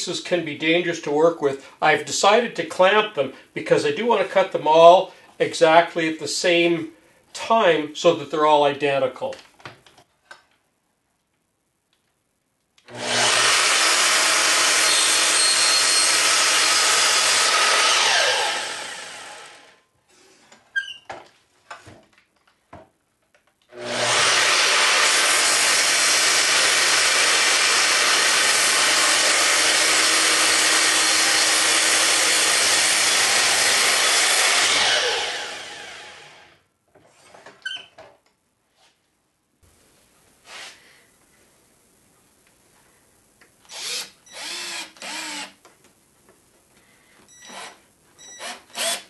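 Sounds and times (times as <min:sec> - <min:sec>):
miter saw cutting wood: 0:12.9 - 0:19.8, 0:23.7 - 0:36.5, 0:43.7 - 0:45.5.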